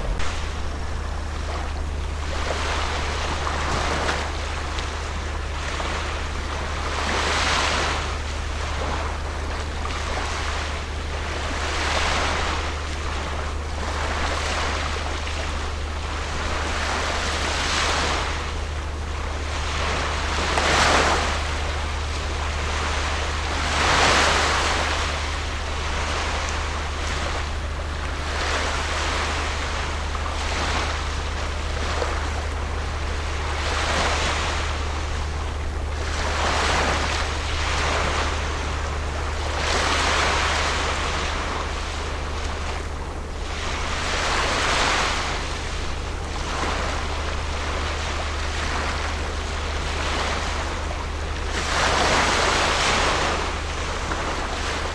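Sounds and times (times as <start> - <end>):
steady low rumble: 0.0 - 54.9
water washing against bank: 0.0 - 54.9.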